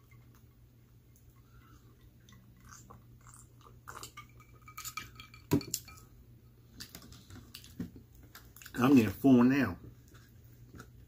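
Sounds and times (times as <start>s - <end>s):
glass clinking and ringing: 4.2s - 6.1s.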